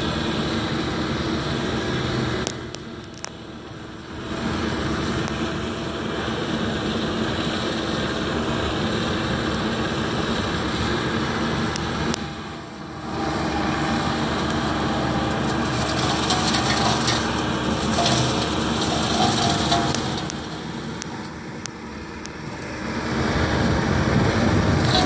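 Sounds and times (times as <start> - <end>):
diesel engine running: 0.0 - 25.0
flail mower shredding brush: 4.1 - 25.0.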